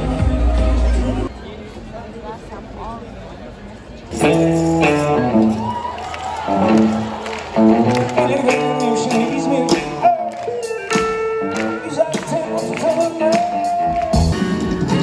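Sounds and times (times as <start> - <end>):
drums: 0.0 - 1.3, 4.1 - 15.0
electric guitar: 4.1 - 15.0
person singing: 7.6 - 15.0.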